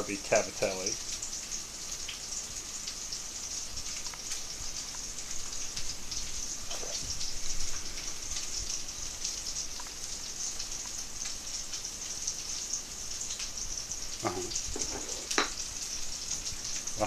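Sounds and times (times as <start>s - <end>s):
meatballs sizzling in a pan: 0.0s - 17.0s.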